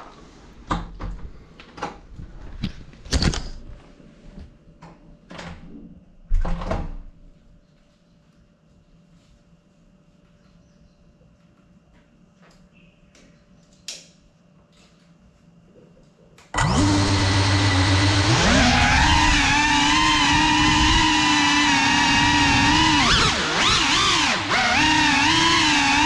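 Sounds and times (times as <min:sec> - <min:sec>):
quadcopter motors whining: 0:16.6 - 0:26.0.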